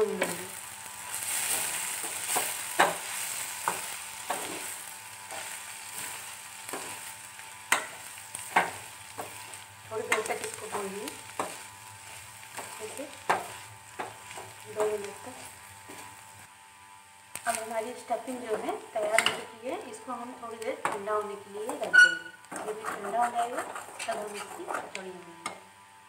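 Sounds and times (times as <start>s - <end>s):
stuffing sizzling in a pan: 0.0s - 26.0s
metal spatula scraping a pan: 1.1s - 16.2s, 21.7s - 25.0s.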